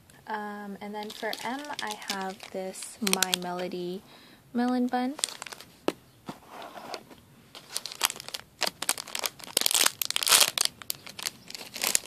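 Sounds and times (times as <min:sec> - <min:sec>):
plastic bag crackling: 0:01.0 - 0:04.0, 0:04.6 - 0:05.8, 0:07.5 - 0:12.0.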